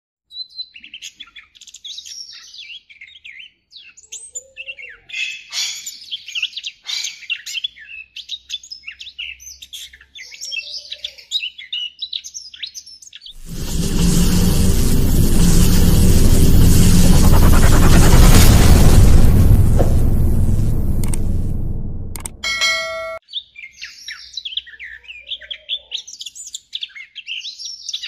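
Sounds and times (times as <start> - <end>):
rush of noise: 13.4 - 22.6.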